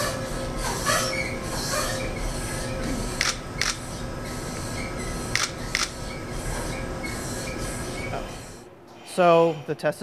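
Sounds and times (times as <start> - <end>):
shake table mechanical noise: 0.8 - 8.6
sharp clicks: 5.4 - 5.9.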